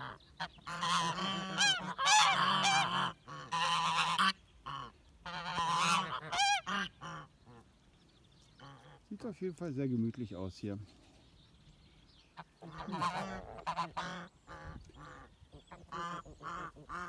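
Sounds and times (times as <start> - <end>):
geese honking: 0.0 - 7.8, 8.6 - 9.2, 12.3 - 17.0.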